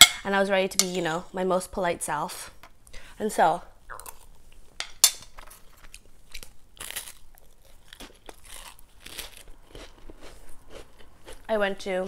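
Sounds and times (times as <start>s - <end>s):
person chewing crackers: 3.9s - 4.6s, 5.4s - 11.5s.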